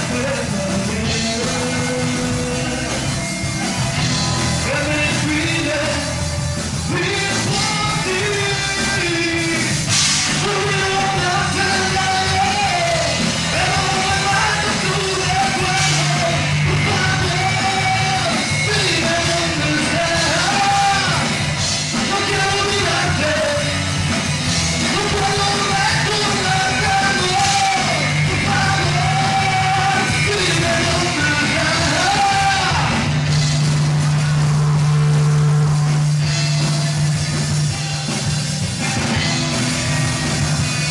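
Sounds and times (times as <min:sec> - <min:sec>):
man singing: 0:00.0 - 0:03.2, 0:04.6 - 0:23.9, 0:24.8 - 0:33.1
live rock band: 0:00.0 - 0:40.9.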